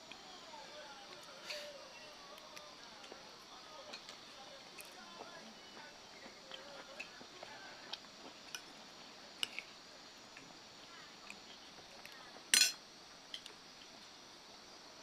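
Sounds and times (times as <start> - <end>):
cutlery and dishes clinking: 12.5 - 12.8.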